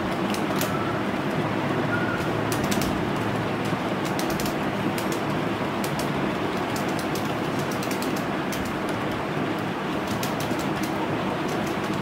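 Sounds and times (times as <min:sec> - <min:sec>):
rushing background noise: 0:00.0 - 0:12.0
keyboard typing: 0:02.2 - 0:03.0, 0:03.6 - 0:09.2, 0:10.0 - 0:12.0.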